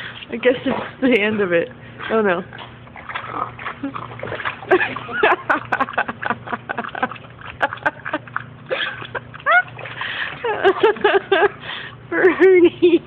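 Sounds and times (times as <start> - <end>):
water splashing and dripping: 2.6 - 11.0.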